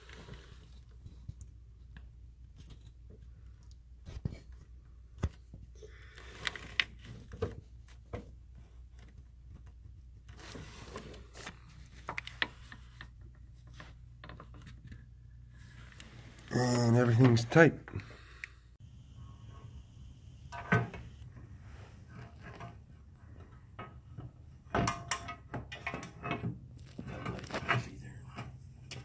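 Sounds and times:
steady low hum: 18.0s - 24.6s.

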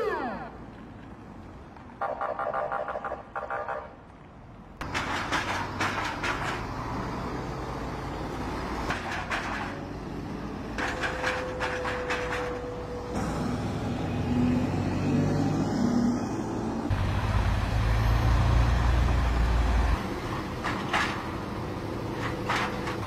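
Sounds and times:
heavy vehicle engines: 0.0s - 23.0s
metallic clanks and rattles: 4.8s - 7.0s, 8.9s - 10.0s, 10.7s - 12.8s, 20.5s - 21.4s, 22.1s - 23.0s.

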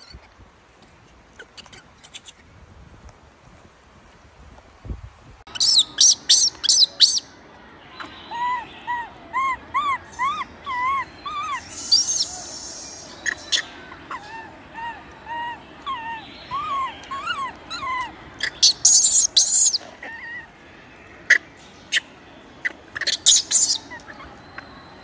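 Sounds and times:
infant monkey screaming and crying: 7.9s - 25.0s.

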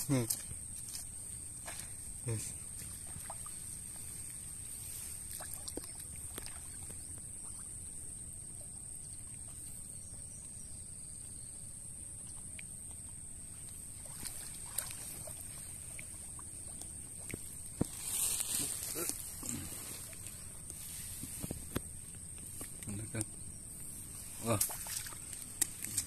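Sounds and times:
water sloshing and splashing: 0.3s - 7.8s, 12.5s - 22.8s, 24.1s - 26.0s.

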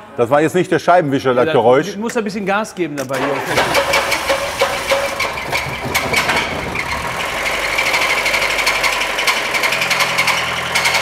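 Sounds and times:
car engine knocking: 3.6s - 11.0s.

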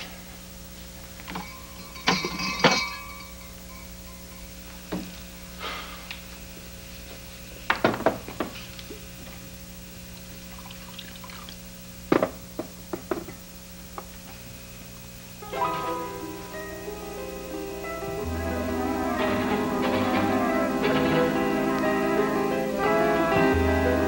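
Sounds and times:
faint steady hum: 0.0s - 24.0s
glassware clinking and knocking: 1.2s - 4.5s
drink pouring: 10.4s - 11.6s.

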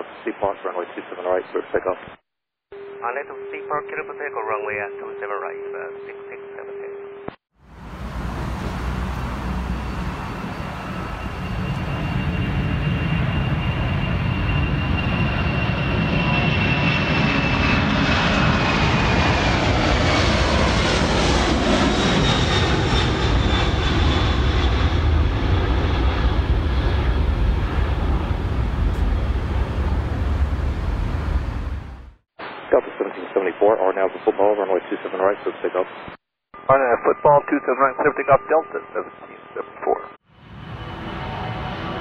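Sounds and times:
jet engine high whine: 6.9s - 32.2s, 36.6s - 42.0s
jet engines roaring: 7.7s - 32.1s, 40.4s - 42.0s.

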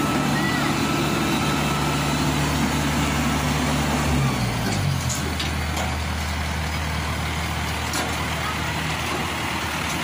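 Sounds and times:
diesel engine running: 0.0s - 10.0s.

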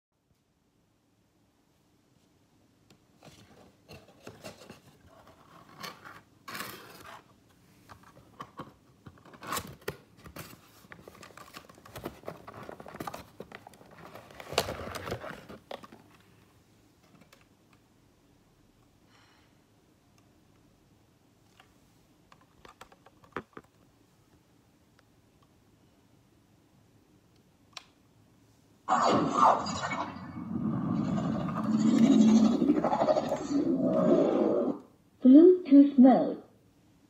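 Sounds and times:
cardboard and paper packaging handled: 3.2s - 16.4s.

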